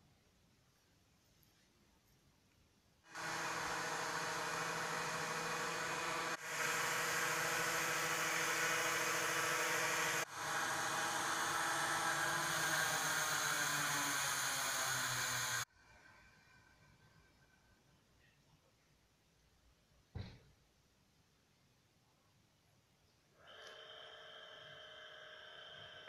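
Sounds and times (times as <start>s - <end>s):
machine whir: 3.1s - 15.7s.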